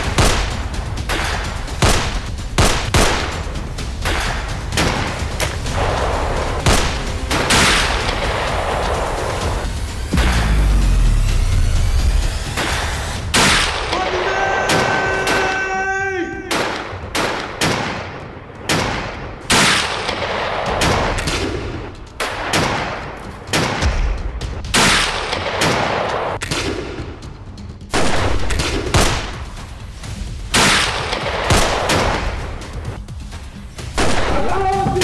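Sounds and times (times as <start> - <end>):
rifle shots echoing: 0.0 - 9.5, 16.5 - 24.1, 30.5 - 32.5.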